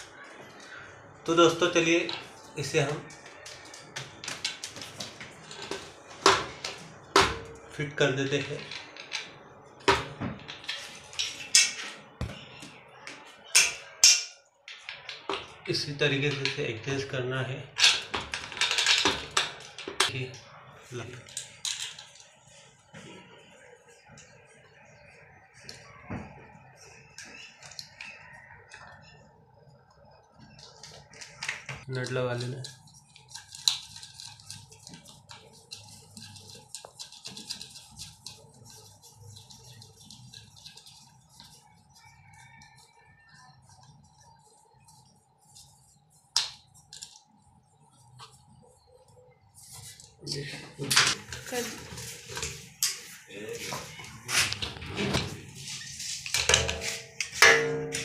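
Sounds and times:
metal parts clinking and knocking: 0:17.8 - 0:20.1.

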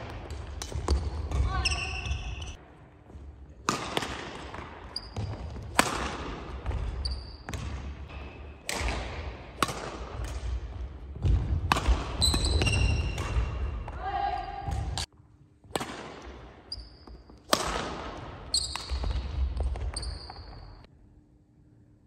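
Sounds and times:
racket striking shuttlecock: 0:00.0 - 0:01.6, 0:03.6 - 0:14.0, 0:15.7 - 0:20.0
shoe squeaks on wooden floor: 0:18.5 - 0:19.1, 0:19.8 - 0:20.8.

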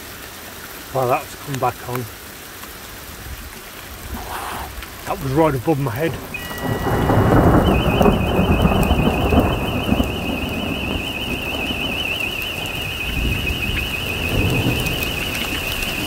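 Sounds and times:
steady rain: 0:00.0 - 0:16.0
thunder rumbling: 0:03.2 - 0:16.0
warbling alarm siren: 0:06.3 - 0:16.0.

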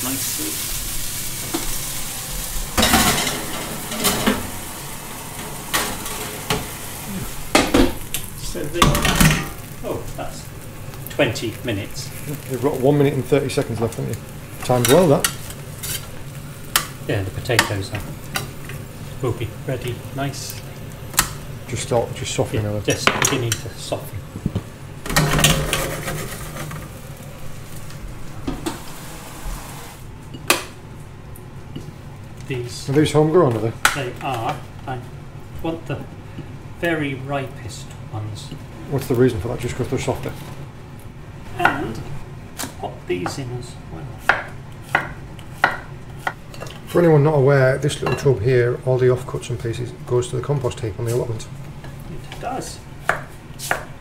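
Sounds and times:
vegetables sizzling in oil: 0:00.0 - 0:54.0.

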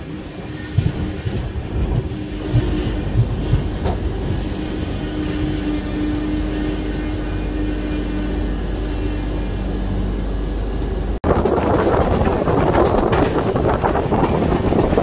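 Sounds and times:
train rumbling at speed: 0:00.0 - 0:15.0
wheels knocking over rail joints: 0:11.2 - 0:15.0.

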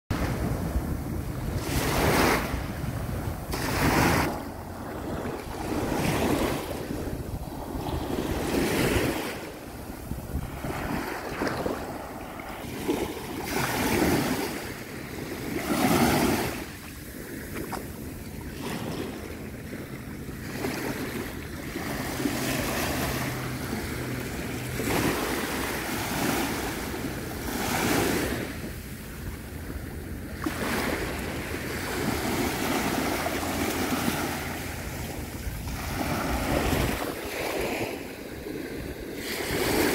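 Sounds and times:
sea waves breaking on beach: 0:00.1 - 0:39.9
wind rumbling on microphone: 0:00.1 - 0:39.9.

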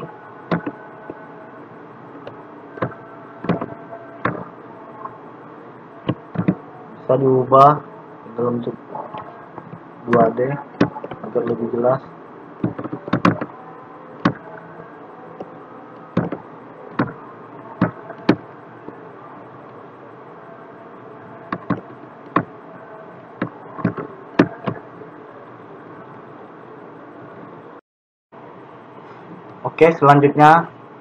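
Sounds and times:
computer mouse clicking: 0:12.6 - 0:13.5, 0:21.5 - 0:22.5.

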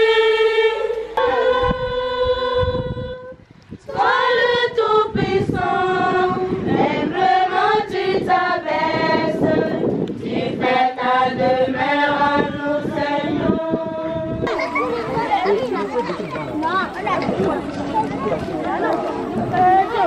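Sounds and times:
choir singing: 0:00.0 - 0:15.2.

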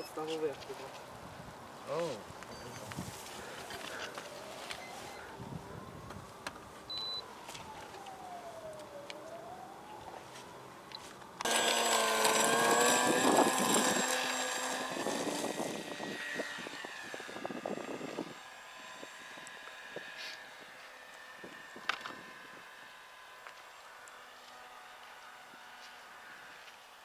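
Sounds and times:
model airplane motor and propeller: 0:07.6 - 0:09.6, 0:11.4 - 0:27.0.

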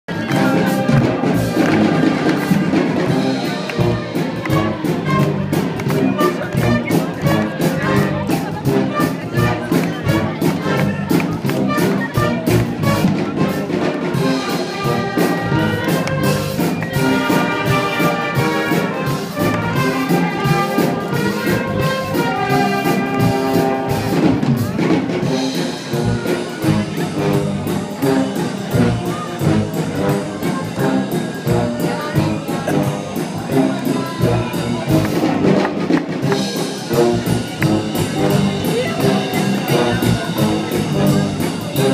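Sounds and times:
brass band playing: 0:00.0 - 0:41.9
steady drum beat: 0:00.1 - 0:41.9.

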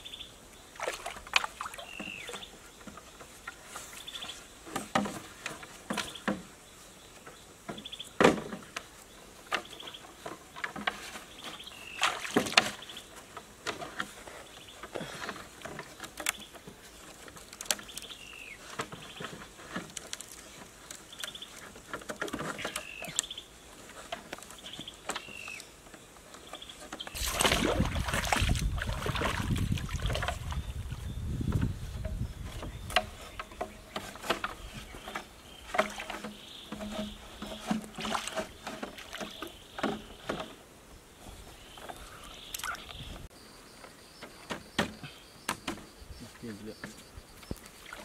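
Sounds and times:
water sloshing and splashing: 0:00.7 - 0:02.5, 0:10.3 - 0:14.2, 0:27.0 - 0:40.6, 0:47.6 - 0:48.0
bamboo poles knocking: 0:04.6 - 0:06.5, 0:07.2 - 0:08.9, 0:09.5 - 0:14.2, 0:14.8 - 0:23.3, 0:31.5 - 0:40.6, 0:44.2 - 0:45.8.

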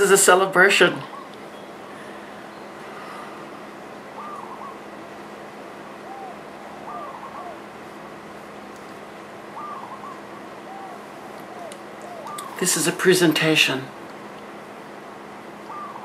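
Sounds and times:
steady low hum: 0:00.0 - 0:16.0
bird calling: 0:00.6 - 0:08.7, 0:09.4 - 0:13.1, 0:15.5 - 0:16.0.

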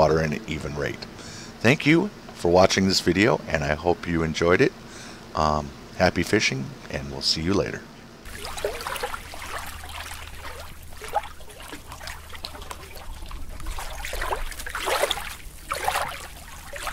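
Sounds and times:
low hum: 0:08.0 - 0:16.9
water trickling and splashing: 0:08.3 - 0:16.9.

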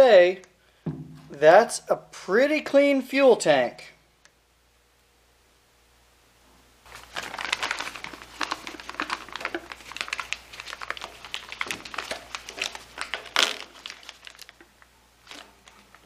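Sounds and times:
plastic bag crinkling: 0:06.9 - 0:16.0.

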